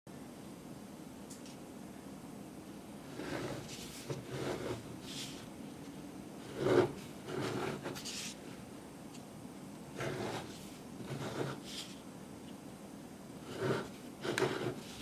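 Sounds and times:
plastic scraping on tabletop: 3.1s - 5.5s, 6.4s - 8.4s, 10.0s - 12.0s, 13.4s - 15.0s.

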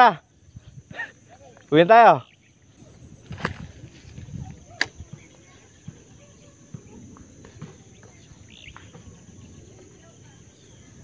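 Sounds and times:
insect drone: 0.0s - 11.0s
fishing rod click: 4.8s - 5.0s
falling bird chirp: 7.8s - 9.4s.

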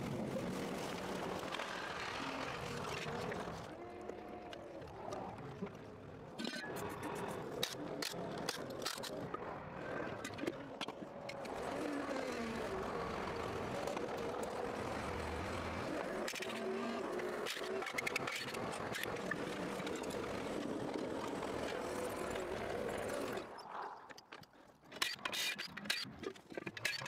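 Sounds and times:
engine running: 11.4s - 23.5s.

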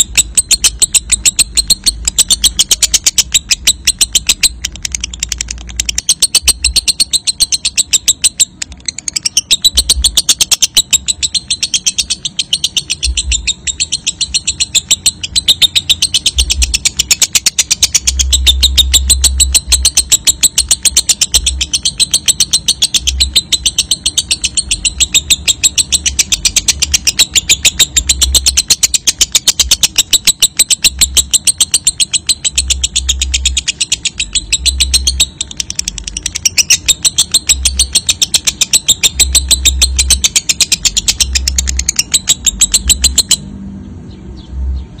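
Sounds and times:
lovebird chattering trill: 0.0s - 43.5s.

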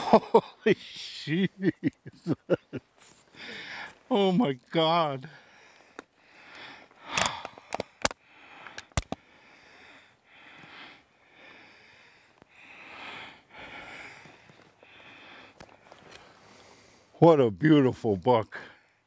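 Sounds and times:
man breathing hard: 3.0s - 4.1s, 5.3s - 17.2s
sharp clicks: 5.9s - 9.2s.

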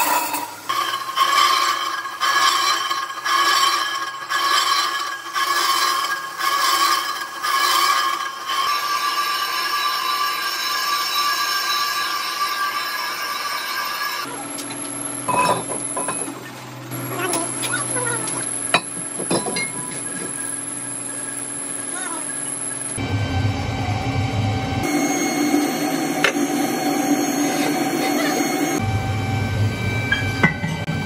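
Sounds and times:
lathe tool cutting metal screech: 0.0s - 23.4s, 24.6s - 31.0s
low machine hum: 14.3s - 31.0s.

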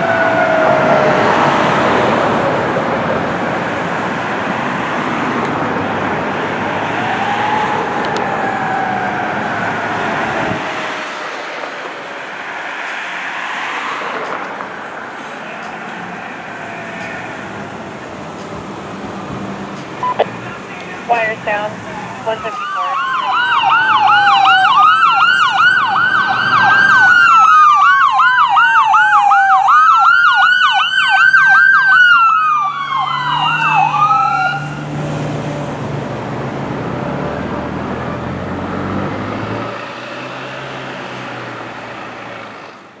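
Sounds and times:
ambulance siren wail and yelp: 0.0s - 2.8s, 6.5s - 11.1s, 21.0s - 34.9s
vehicle engine and road noise: 0.0s - 43.0s.

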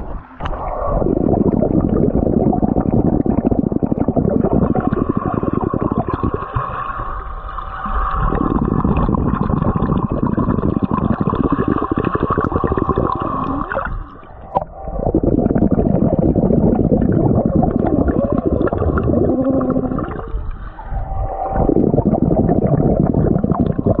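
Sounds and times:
low underwater rumble: 0.0s - 24.0s
underwater air bubbles: 0.0s - 24.0s.

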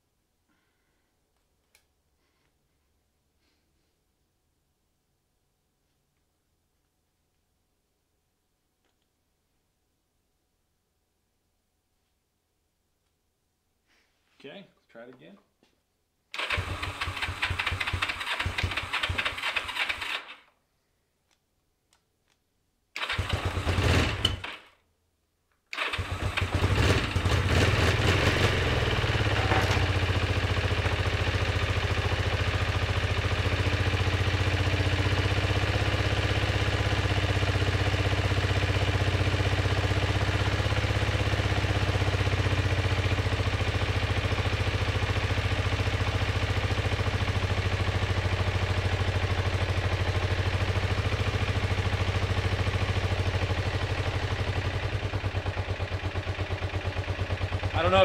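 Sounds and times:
electric starter cranking: 16.4s - 20.5s, 23.0s - 24.7s, 25.7s - 30.2s
motorcycle engine running: 25.8s - 58.0s.

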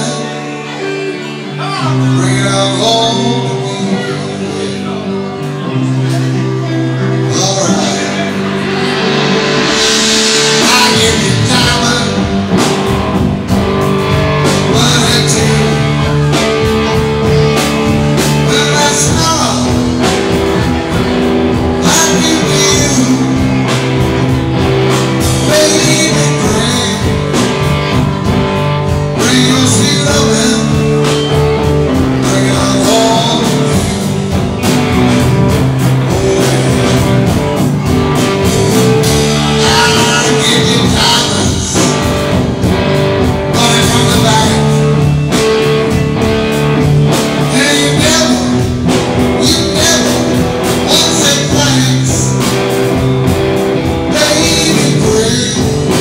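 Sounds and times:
bass guitar: 0.0s - 56.0s
drum kit: 0.0s - 56.0s
electric guitars: 0.0s - 56.0s.

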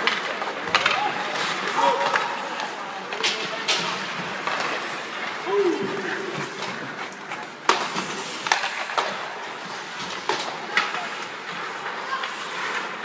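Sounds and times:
hockey sticks and puck clacking: 0.0s - 13.0s
skates hissing on ice: 3.8s - 13.0s.

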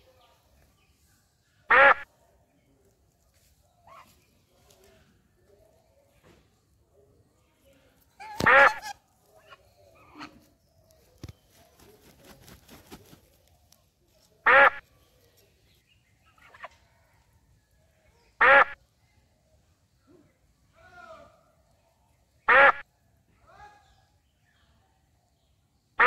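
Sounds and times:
geese honking: 1.7s - 2.0s, 8.2s - 9.0s, 14.5s - 14.8s, 18.4s - 18.8s, 22.5s - 22.8s.

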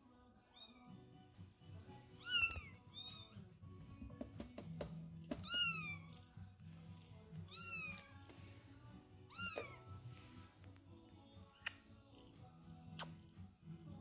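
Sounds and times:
background music: 0.0s - 14.0s
kittens meowing: 2.2s - 3.5s, 5.4s - 6.1s, 7.5s - 8.2s, 9.3s - 9.9s.

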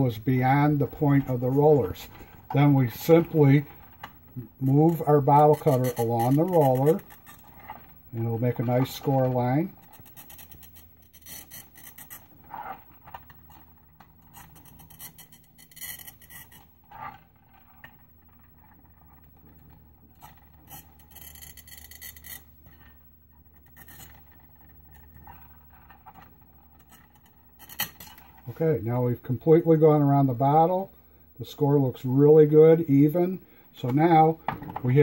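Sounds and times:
cutting wheel scoring glass bottle: 0.1s - 17.1s, 20.2s - 28.4s.

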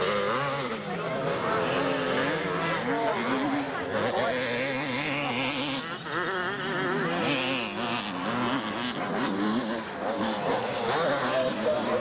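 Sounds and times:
motocross bike engines revving: 0.0s - 12.0s.

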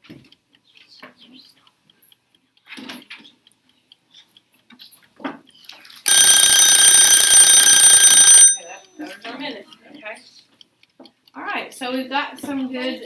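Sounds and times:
electronic alarm tone: 6.1s - 8.8s.

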